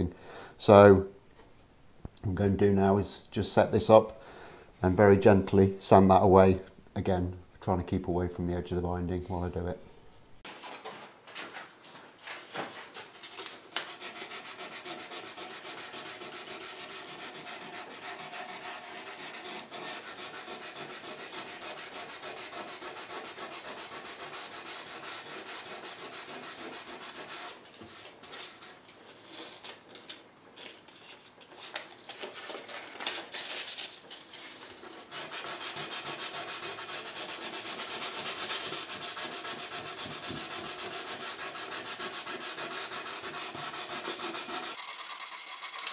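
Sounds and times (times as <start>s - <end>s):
sandpaper rubbing on wood: 13.9s - 28.8s, 35.1s - 45.9s.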